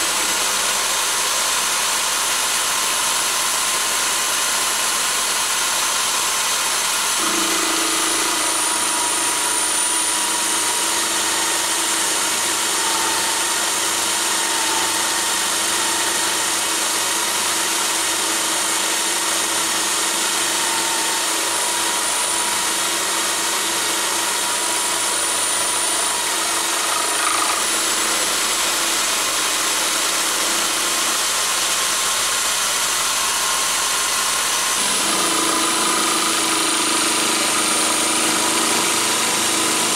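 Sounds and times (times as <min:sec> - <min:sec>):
power drill motor whine: 0:00.0 - 0:39.9.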